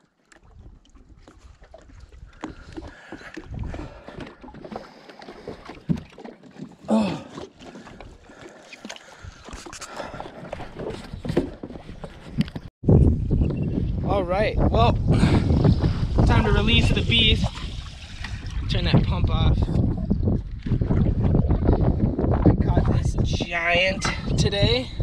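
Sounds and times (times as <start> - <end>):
footsteps on wooden dock: 0.3 - 12.7.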